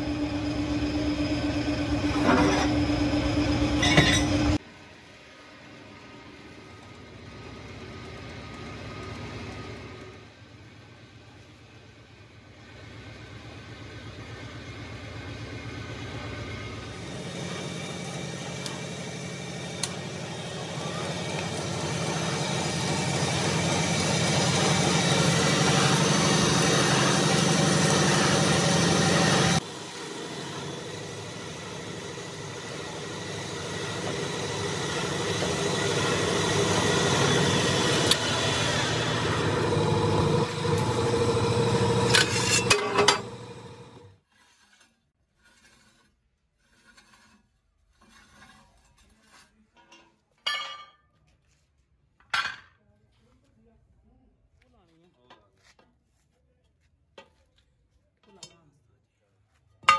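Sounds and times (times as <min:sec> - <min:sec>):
rolling machine humming: 0:00.0 - 0:44.2.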